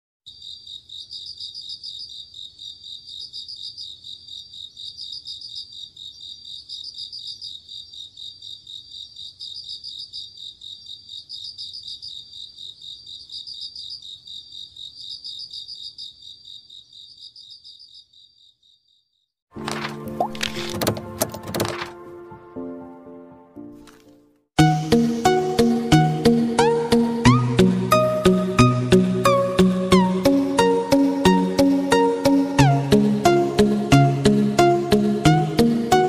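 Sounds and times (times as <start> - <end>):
crickets chirping: 0.3 - 19.2.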